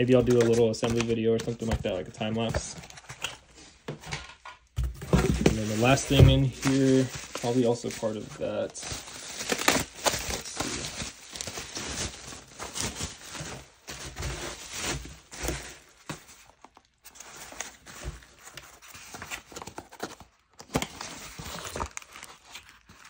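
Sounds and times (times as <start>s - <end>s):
cardboard boxes scraping and knocking: 4.8s - 7.5s
bubble wrap crinkling: 5.4s - 23.0s.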